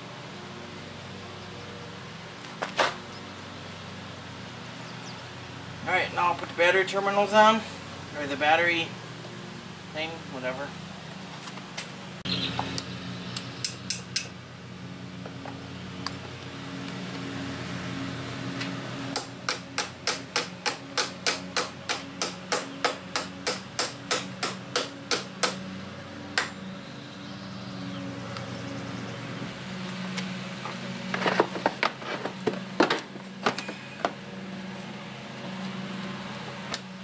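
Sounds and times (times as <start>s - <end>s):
sharp metallic clicks of hand tool: 13.3s - 14.3s, 19.2s - 25.6s.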